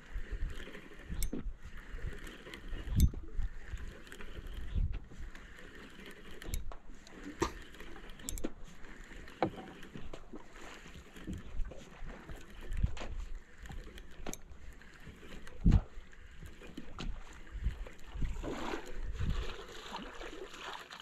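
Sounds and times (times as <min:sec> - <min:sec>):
wind buffeting microphone: 0:00.0 - 0:05.4, 0:15.5 - 0:19.6
water lapping against boat hull: 0:00.0 - 0:21.0.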